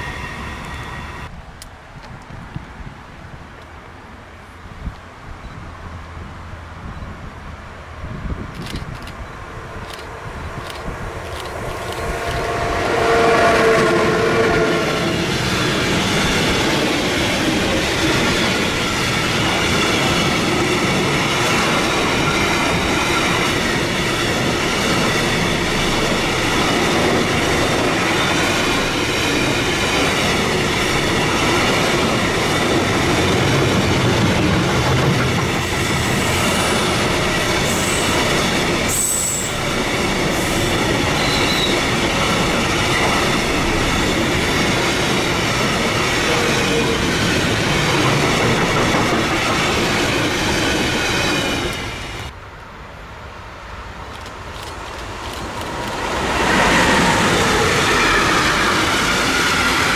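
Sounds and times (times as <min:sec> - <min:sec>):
locomotive steady tones: 0:00.0 - 0:01.3, 0:08.5 - 0:52.4
train wheels rumbling on rails: 0:00.0 - 0:02.7, 0:08.0 - 0:52.4, 0:54.0 - 0:59.9
high wheel squeals: 0:35.6 - 0:42.0.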